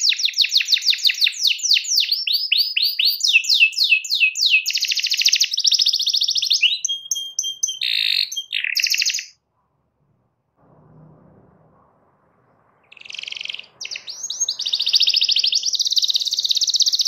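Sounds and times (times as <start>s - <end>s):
canary singing: 0.0s - 9.4s, 12.8s - 17.0s.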